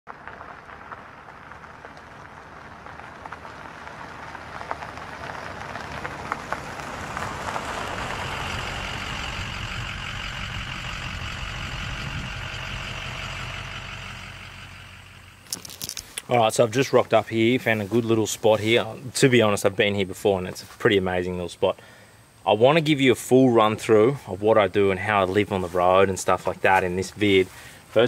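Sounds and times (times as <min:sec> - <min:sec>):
vehicle engine running: 0:00.1 - 0:18.8
gravel ticks: 0:00.1 - 0:22.9, 0:23.6 - 0:28.0
tyres rolling on dirt road: 0:00.1 - 0:28.0.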